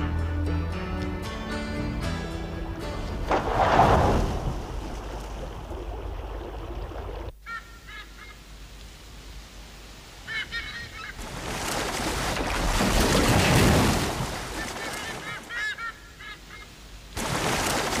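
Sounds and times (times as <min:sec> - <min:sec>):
water splashing: 0:03.0 - 0:07.4, 0:11.0 - 0:15.7, 0:17.1 - 0:18.0
waterbirds honking: 0:06.7 - 0:08.5, 0:10.2 - 0:11.4, 0:14.3 - 0:16.8.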